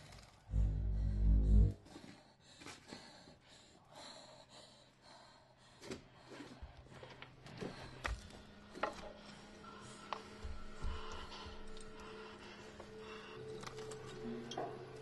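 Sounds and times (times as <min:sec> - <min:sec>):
low steady hum: 0:00.5 - 0:01.8.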